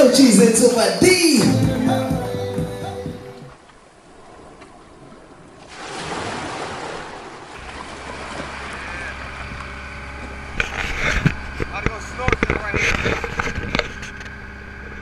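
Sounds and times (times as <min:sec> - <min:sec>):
surf: 0:00.0 - 0:15.0
wind: 0:03.2 - 0:15.0
low steady hum: 0:07.5 - 0:15.0.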